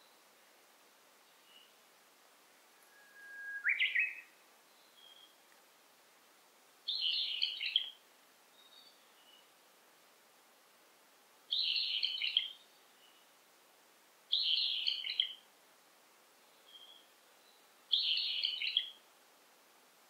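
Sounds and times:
songbird singing: 0:01.2 - 0:01.9, 0:02.6 - 0:05.6, 0:06.8 - 0:09.8, 0:11.5 - 0:13.4, 0:14.3 - 0:15.5, 0:16.3 - 0:19.1
faint short bird notes: 0:02.8 - 0:04.3.

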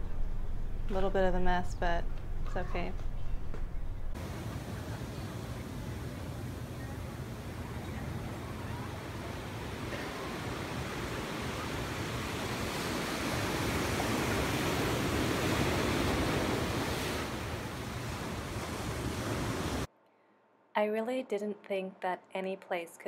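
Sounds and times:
ocean surf breaking: 0:04.1 - 0:19.9.

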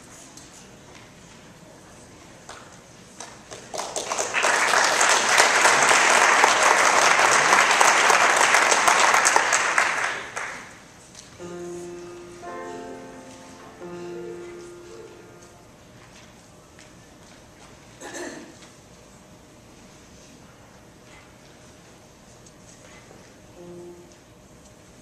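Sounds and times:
audience applause: 0:03.4 - 0:10.8
grand piano chords: 0:11.4 - 0:16.0, 0:23.5 - 0:25.0.

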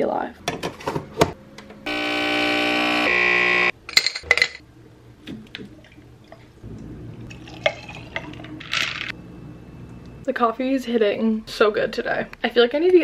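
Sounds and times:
coffee machine motor humming: 0:01.9 - 0:03.7.

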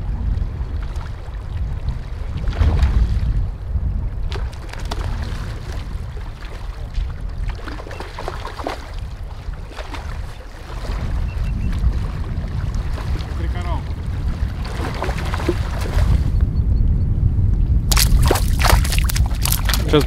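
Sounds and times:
river water lapping and splashing: 0:00.0 - 0:03.5, 0:04.2 - 0:16.3, 0:17.9 - 0:20.0
wind rumble on microphone: 0:00.0 - 0:20.0.

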